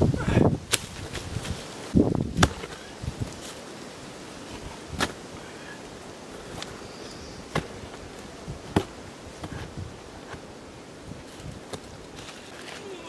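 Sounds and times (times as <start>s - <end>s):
stones clacking and thudding: 2.3s - 2.9s.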